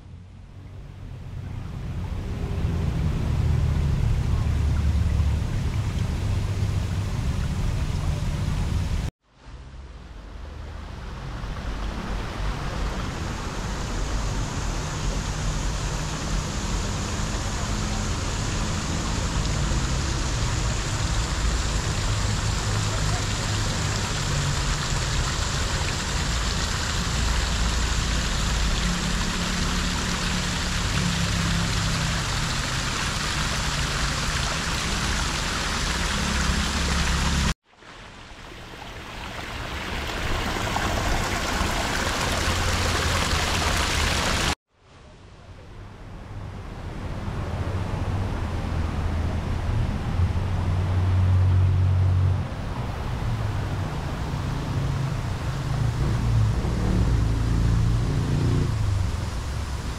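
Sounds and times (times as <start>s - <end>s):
running water: 0.8s - 44.6s.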